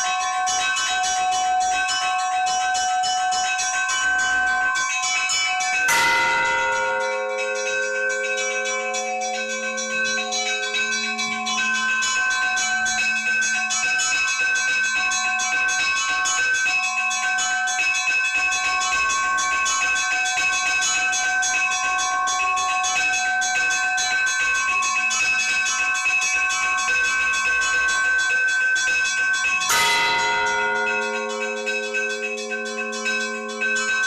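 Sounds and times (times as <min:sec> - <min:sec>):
church bells pealing: 0:04.2 - 0:16.2, 0:29.6 - 0:34.0.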